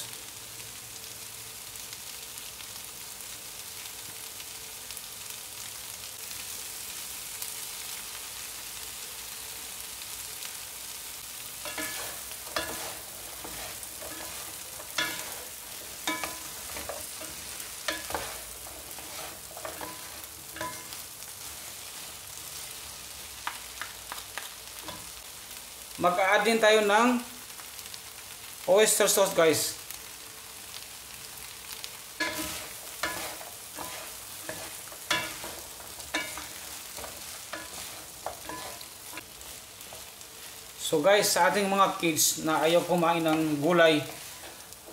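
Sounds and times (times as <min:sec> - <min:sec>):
vegetables sizzling in a frying pan: 0:00.0 - 0:44.9
wooden utensils scraping a pan: 0:11.6 - 0:22.2, 0:32.2 - 0:40.6, 0:43.2 - 0:44.9.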